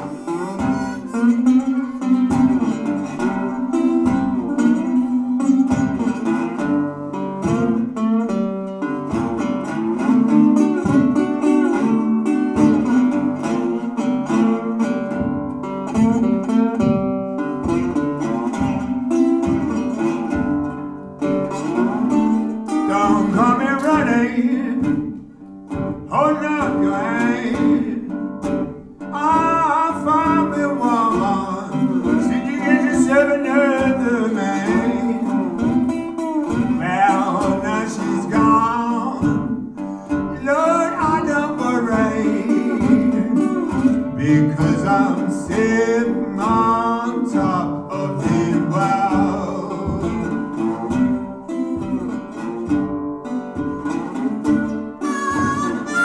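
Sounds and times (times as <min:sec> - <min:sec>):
slide resonator guitar: 0:00.0 - 0:56.0
man singing: 0:21.5 - 0:25.2, 0:25.9 - 0:52.4, 0:55.0 - 0:56.0.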